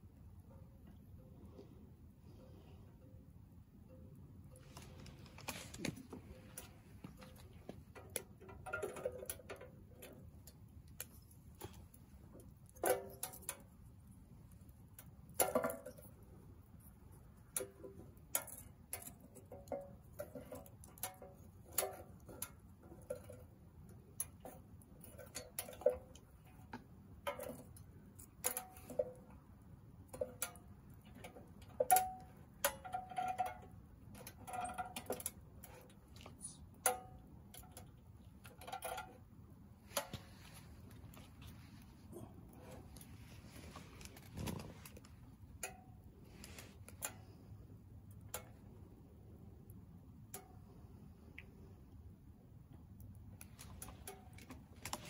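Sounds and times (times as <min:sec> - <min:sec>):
low steady hum: 0:00.0 - 0:55.0
firewood crackling and popping: 0:04.0 - 0:47.3.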